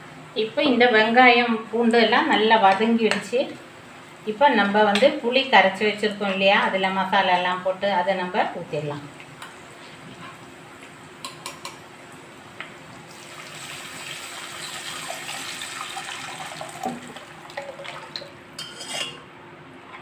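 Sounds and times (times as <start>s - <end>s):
onions frying in oil: 12.1s - 17.6s
liquid pouring into a pot: 13.1s - 18.3s.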